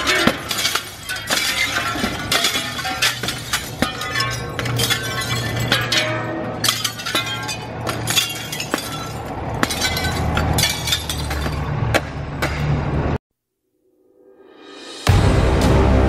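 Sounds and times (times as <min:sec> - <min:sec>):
glass shards tinkling: 0:00.0 - 0:11.7
window glass shattering: 0:00.0 - 0:11.8
music with low bass: 0:15.0 - 0:16.0.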